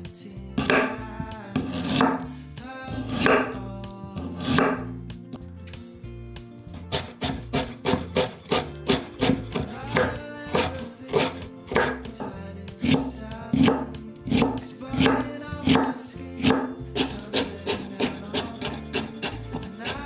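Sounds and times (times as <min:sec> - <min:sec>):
background music: 0:00.0 - 0:20.0
knife chopping on wooden board: 0:00.6 - 0:01.0, 0:01.6 - 0:02.3, 0:02.9 - 0:03.6, 0:04.2 - 0:04.9, 0:06.8 - 0:20.0.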